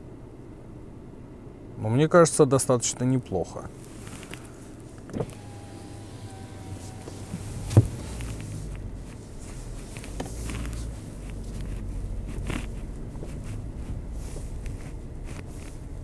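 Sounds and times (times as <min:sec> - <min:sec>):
car rumbling over bumpy track: 0:05.0 - 0:16.0.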